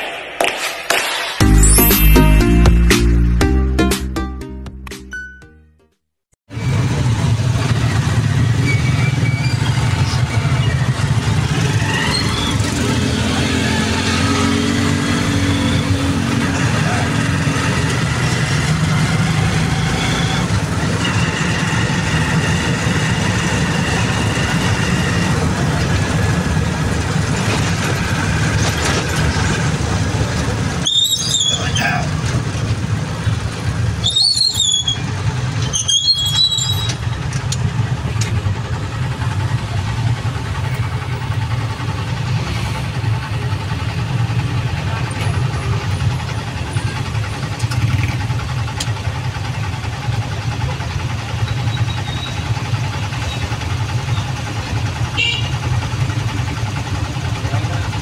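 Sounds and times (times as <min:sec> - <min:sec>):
motorcycle engine droning: 0:06.5 - 0:58.0
short high-pitched squeals: 0:34.0 - 0:37.3.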